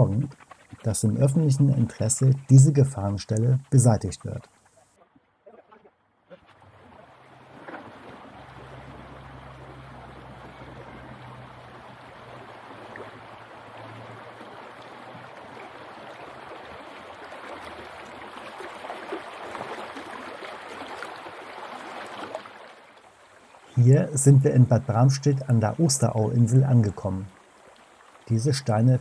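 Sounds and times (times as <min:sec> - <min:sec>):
river water rushing over stones: 0:06.7 - 0:23.2.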